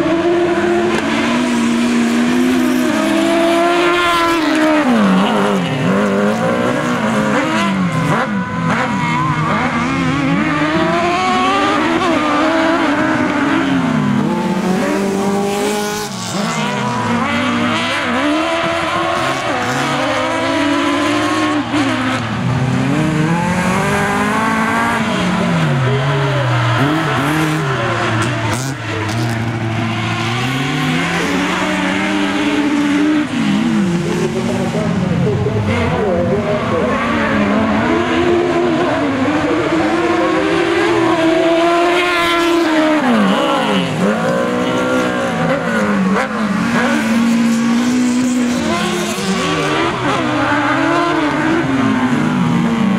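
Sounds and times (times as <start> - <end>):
race car engines revving: 0.0 - 52.9.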